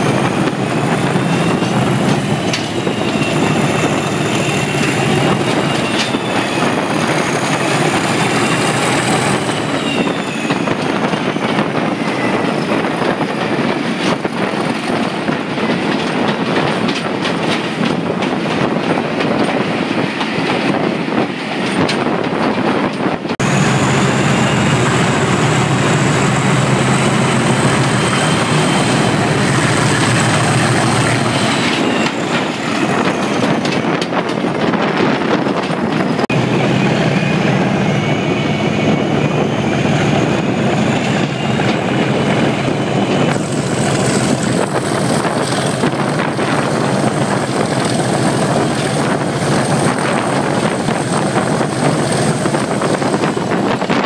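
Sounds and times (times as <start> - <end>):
diesel locomotive engine working hard: 0.0 - 54.0
turbocharger whistling: 2.7 - 12.9, 23.4 - 33.0.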